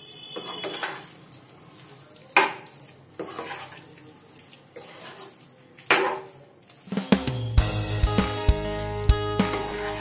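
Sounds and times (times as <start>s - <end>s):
metal spatula scraping a wok: 0.3s - 1.1s, 3.1s - 3.9s, 4.7s - 6.4s, 9.4s - 10.0s
chicken sizzling in a wok: 6.9s - 10.0s.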